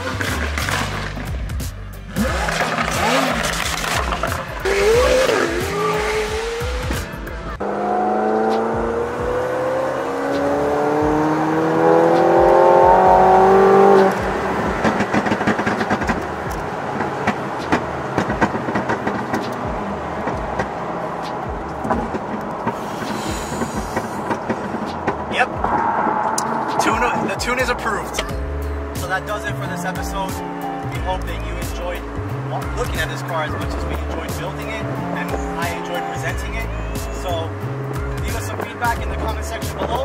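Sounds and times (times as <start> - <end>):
exhaust pops and crackles: 0.0 - 7.2, 12.2 - 25.9, 26.8 - 40.0
sports car engine accelerating: 0.0 - 40.0.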